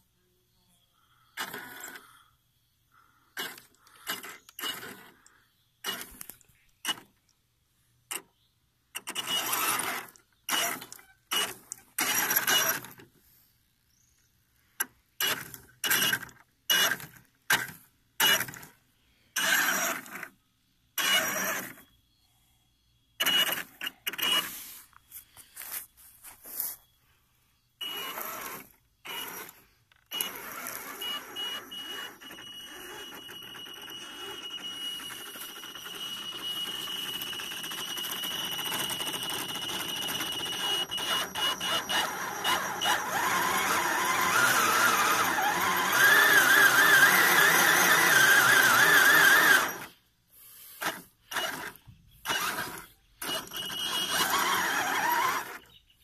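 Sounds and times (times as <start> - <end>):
small electric motor running: 9.0 - 12.9, 19.4 - 20.3, 21.0 - 21.8, 23.2 - 24.6, 27.8 - 50.0, 50.8 - 55.6.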